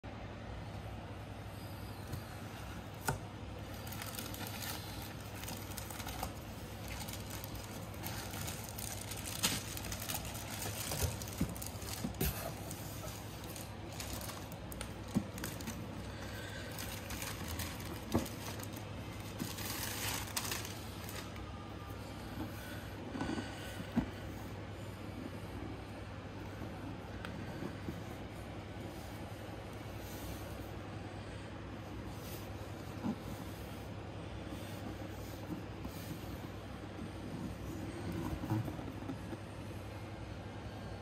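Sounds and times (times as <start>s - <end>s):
packing wrap crinkling: 2.9s - 21.5s.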